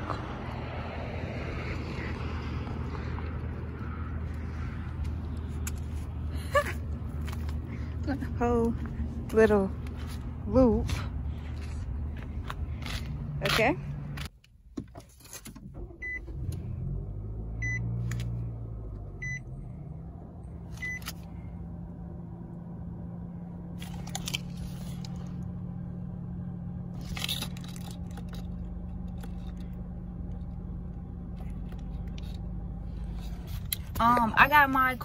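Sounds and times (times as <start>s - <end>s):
car engine starting and idling: 0.0s - 35.0s
dashboard warning chimes: 17.6s - 17.9s.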